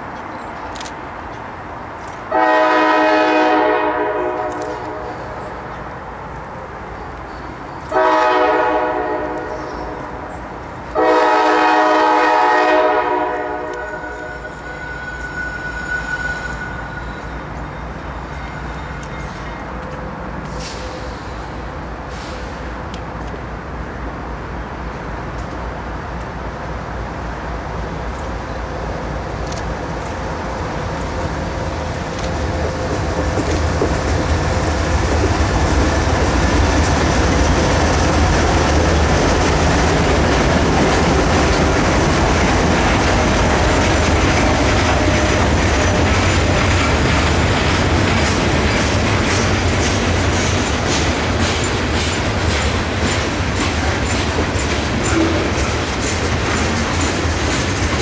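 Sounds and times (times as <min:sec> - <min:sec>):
diesel locomotive engines: 0:00.0 - 0:58.0
train wheels clicking over rail joints: 0:27.6 - 0:58.0.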